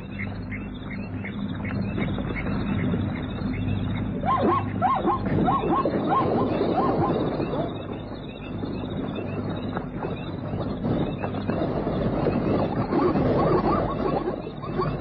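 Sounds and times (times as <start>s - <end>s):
rising-and-falling animal cries: 4.2s - 7.7s.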